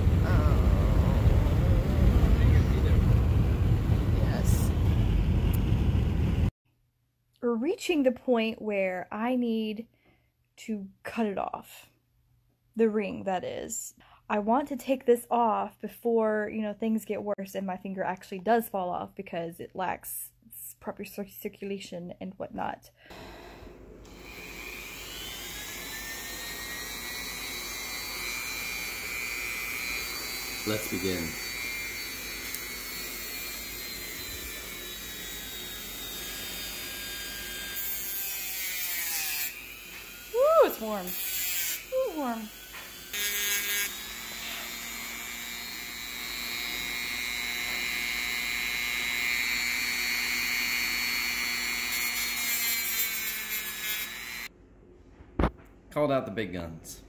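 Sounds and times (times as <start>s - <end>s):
rotary tool high-pitched whine: 23.1s - 54.5s.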